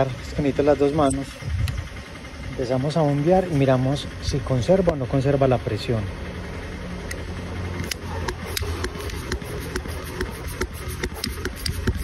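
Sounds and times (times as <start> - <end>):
low engine hum: 0.0 - 12.0
hand pump clicking: 7.8 - 12.0.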